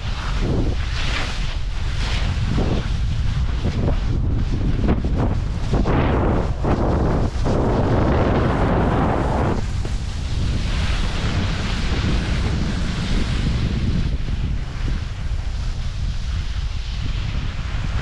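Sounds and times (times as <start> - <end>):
skis scraping through snow: 0.0 - 18.0
wind rumble on microphone: 0.0 - 18.0.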